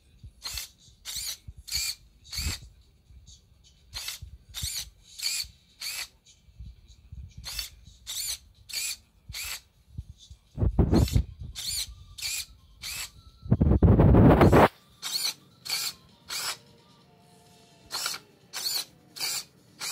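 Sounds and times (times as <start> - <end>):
servo motors whirring: 0.4 - 2.6, 4.0 - 6.1, 7.4 - 9.6, 10.8 - 13.2, 14.1 - 16.6, 17.9 - 19.9.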